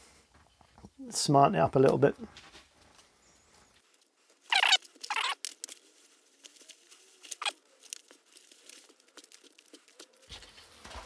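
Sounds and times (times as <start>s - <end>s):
faint leaf crackles: 1.8s - 11.0s
dry leaves rustling: 3.8s - 11.0s.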